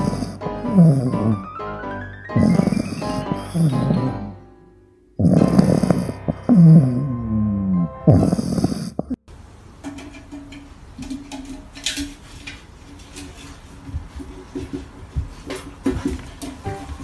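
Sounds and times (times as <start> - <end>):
puppy snoring: 0.0 - 1.5, 2.3 - 4.2, 5.2 - 9.2.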